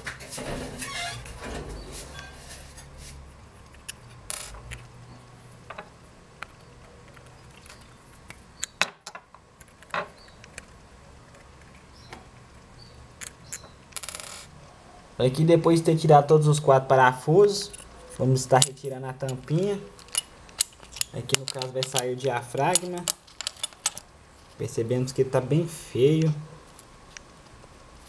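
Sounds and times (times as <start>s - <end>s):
screwdriver clicking on metal screws: 20.0s - 24.0s.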